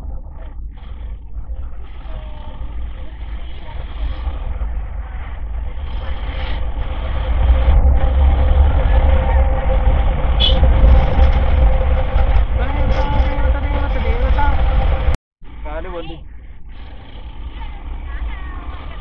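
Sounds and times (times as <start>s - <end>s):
wind rumble on microphone: 0.0s - 15.2s
motorcycle engine: 0.0s - 15.8s
road noise: 0.0s - 19.0s.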